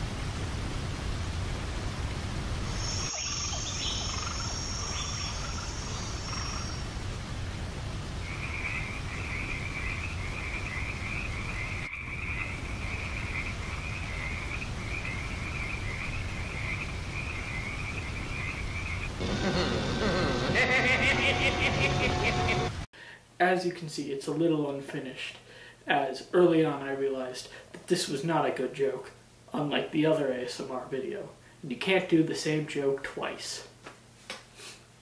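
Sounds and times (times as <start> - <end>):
steady hiss: 0.0 - 35.0
frogs calling: 2.7 - 6.9, 8.2 - 22.5
rapid pulsing chirp: 2.7 - 6.9.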